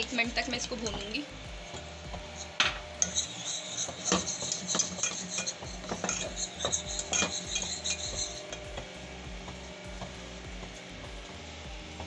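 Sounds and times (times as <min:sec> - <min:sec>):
wire whisk scraping a saucepan: 0:01.8 - 0:08.8.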